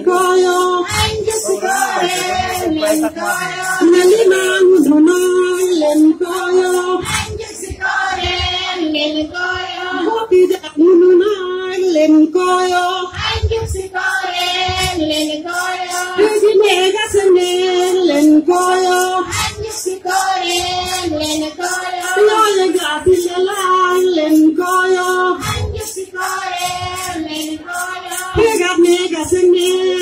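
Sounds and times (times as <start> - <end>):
women's chorus singing: 0.0 - 10.4, 12.9 - 18.3, 18.9 - 23.3, 25.0 - 30.0.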